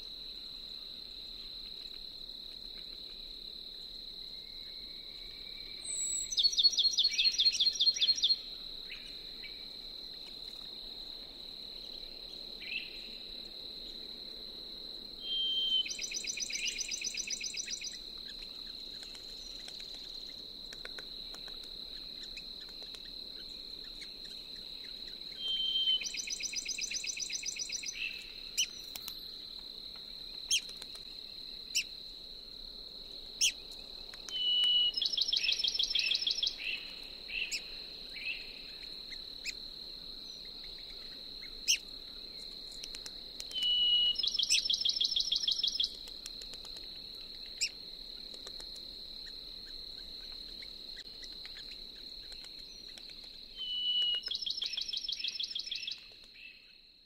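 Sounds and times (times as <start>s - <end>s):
sparrow whistle and trill song: 5.7s - 9.6s, 15.2s - 18.0s, 25.3s - 29.0s, 34.3s - 38.8s, 43.5s - 46.0s, 53.6s - 56.7s.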